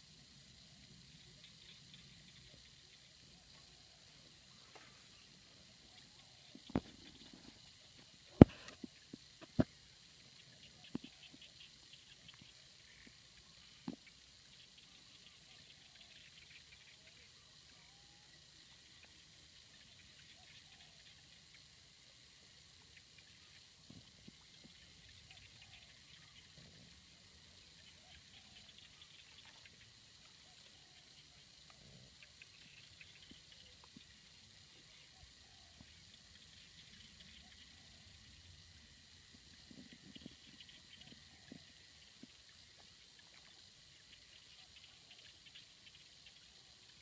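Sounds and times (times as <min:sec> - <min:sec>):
faint background hiss: 0:00.0 - 0:47.0
soft ticks: 0:10.4 - 0:17.0.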